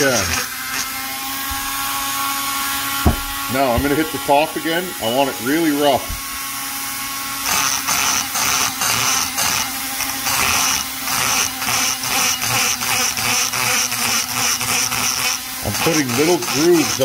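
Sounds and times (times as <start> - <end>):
rotary grinder cutting metal: 0.0 - 17.0.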